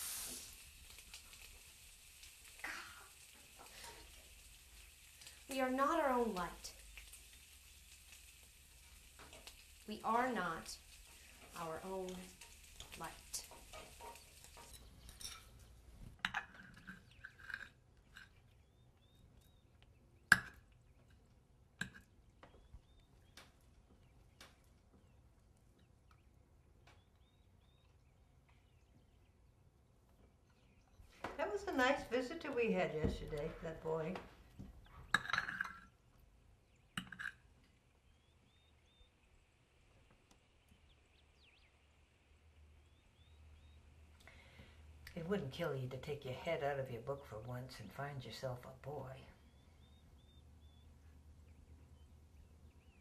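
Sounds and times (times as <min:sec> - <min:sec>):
cutlery clinking on crockery: 0:12.4 - 0:18.4, 0:35.1 - 0:36.0
tableware clinking: 0:13.7 - 0:15.6, 0:35.1 - 0:36.0
faint bird chirps: 0:18.5 - 0:21.1, 0:22.3 - 0:29.6, 0:37.7 - 0:44.8, 0:49.2 - 0:53.0.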